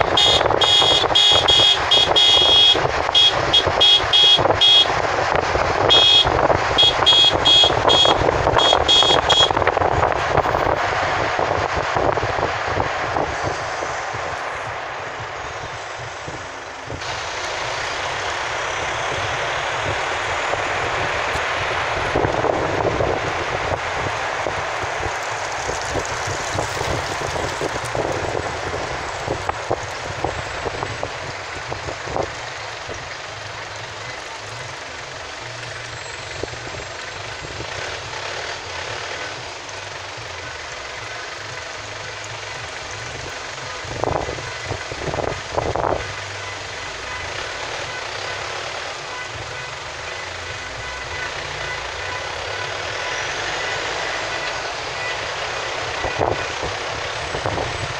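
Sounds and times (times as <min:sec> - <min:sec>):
high-pitched horn toots: 0:00.0 - 0:05.1, 0:05.8 - 0:10.8, 0:44.0 - 0:57.9
vehicle road and wind noise: 0:00.0 - 0:57.9.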